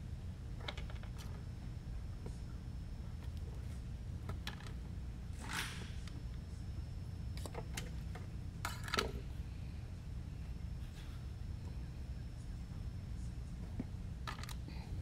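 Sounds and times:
steady low hum: 0:00.0 - 0:15.0
small parts and tools clicking: 0:14.2 - 0:14.6.

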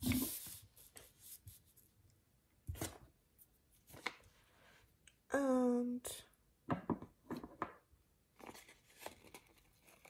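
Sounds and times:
paper rustling on a desk: 0:00.0 - 0:01.8.

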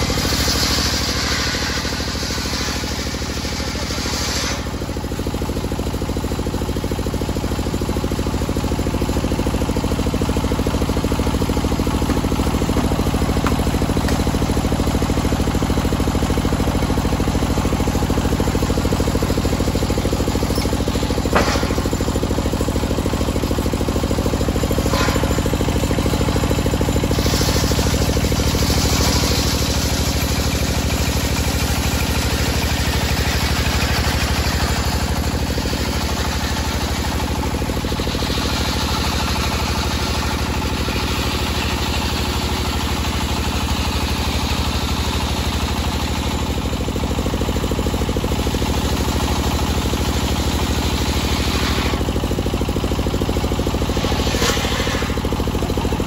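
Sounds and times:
circular saw cutting log: 0:00.0 - 0:05.4, 0:10.5 - 0:43.4, 0:49.6 - 0:56.0
engine running under load: 0:00.0 - 0:56.0.

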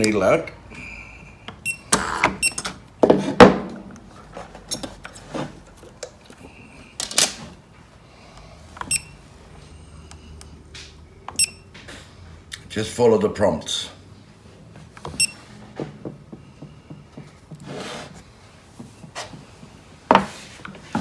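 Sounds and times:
handling knocks and clunks: 0:01.5 - 0:06.4, 0:14.9 - 0:21.0
short electronic beeps: 0:01.6 - 0:02.6, 0:08.8 - 0:09.2, 0:11.3 - 0:11.7, 0:15.2 - 0:15.4.

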